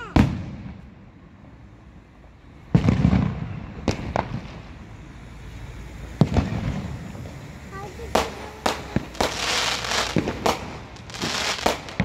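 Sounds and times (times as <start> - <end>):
fireworks bangs: 0.0 - 1.0, 2.7 - 12.0
fireworks sharp cracks: 0.0 - 1.0, 2.7 - 12.0.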